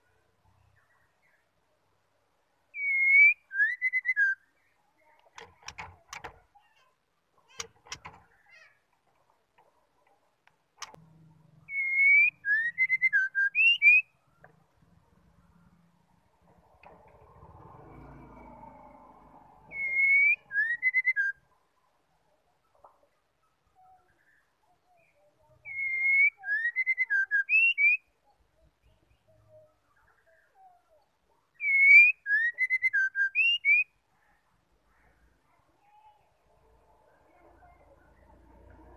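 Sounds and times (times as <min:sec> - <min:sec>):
bird singing whistled notes: 0:02.7 - 0:04.8, 0:11.7 - 0:14.2, 0:19.6 - 0:21.5, 0:23.7 - 0:30.6, 0:31.5 - 0:34.0
sharp click: 0:10.4 - 0:11.0.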